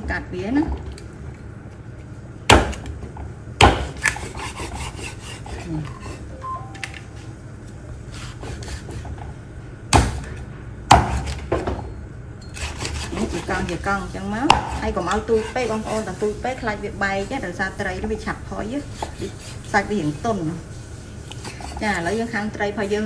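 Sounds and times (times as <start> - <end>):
knife chopping on wooden block: 2.5 - 2.9, 3.6 - 5.6, 10.9 - 11.7, 14.4 - 15.6, 19.0 - 19.4.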